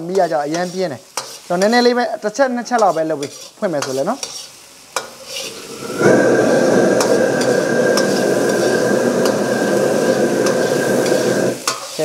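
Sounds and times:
squid frying in hot oil: 0.0 - 12.0
loud steady rushing sound: 5.5 - 11.6.

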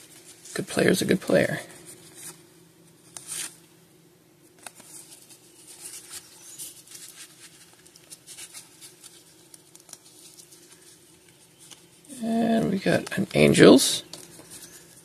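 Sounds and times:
cards sliding and rustling: 3.0 - 3.6, 4.6 - 12.0.

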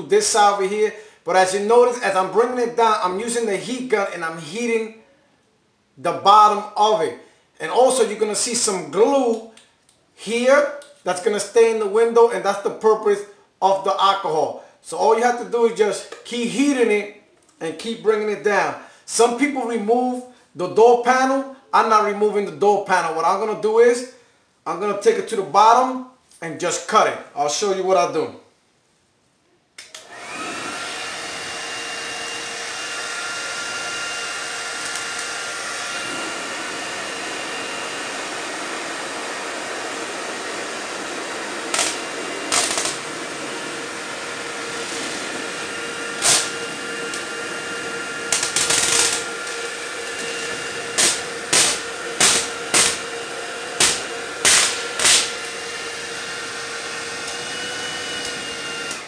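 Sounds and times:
hair dryer whining: 29.8 - 59.0.

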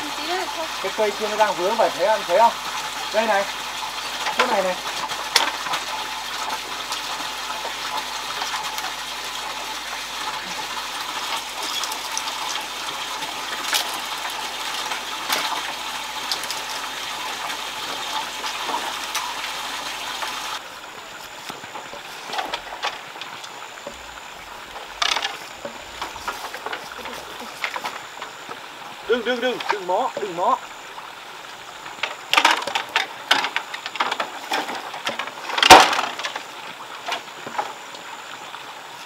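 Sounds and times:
rushing water noise: 0.0 - 39.0
clicks and rustles: 20.6 - 28.6, 31.8 - 37.8.

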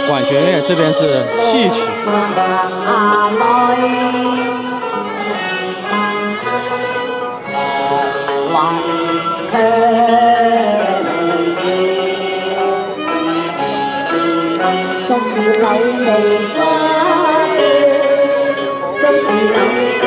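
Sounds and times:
bowed strings: 0.0 - 20.0
opera singing: 1.3 - 7.0, 8.4 - 13.6, 15.0 - 20.0.

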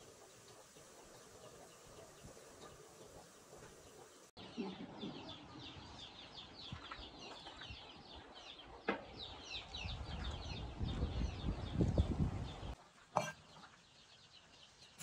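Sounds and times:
chickens clucking: 0.0 - 5.6.

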